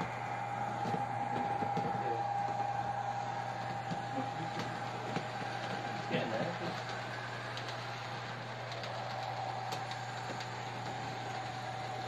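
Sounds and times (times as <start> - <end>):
model train motor whine: 0.0 - 12.0
wheels clicking on rails: 3.6 - 12.0.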